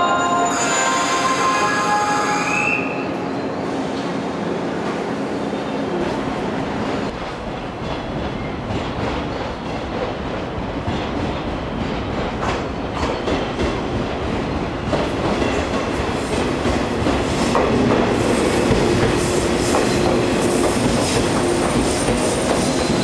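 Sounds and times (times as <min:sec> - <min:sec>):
electric train pulling in: 0:00.0 - 0:04.4.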